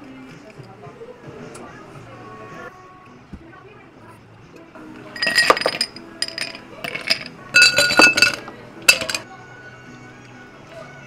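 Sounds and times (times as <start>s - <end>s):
ice cubes clinking into glasses: 5.2s - 9.2s.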